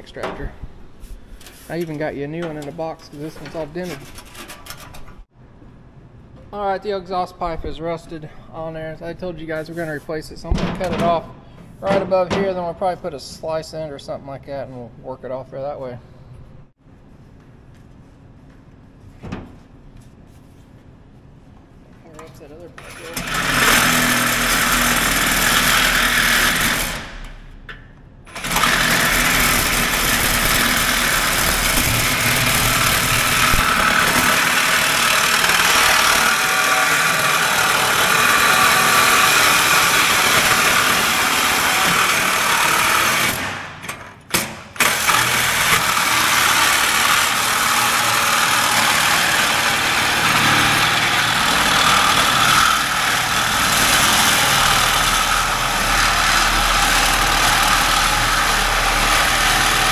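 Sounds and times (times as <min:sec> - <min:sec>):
reciprocating saw cutting metal pipe: 0:22.8 - 0:27.1, 0:28.3 - 0:43.4, 0:44.8 - 0:59.9.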